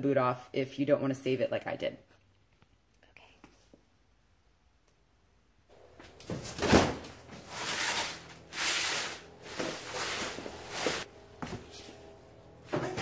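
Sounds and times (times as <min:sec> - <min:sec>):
cardboard scraping on concrete: 0:06.3 - 0:11.1.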